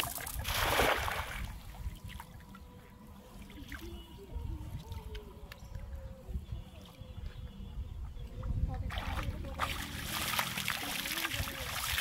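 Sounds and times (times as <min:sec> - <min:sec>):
net splashing on water: 0:00.0 - 0:01.5, 0:08.9 - 0:12.0.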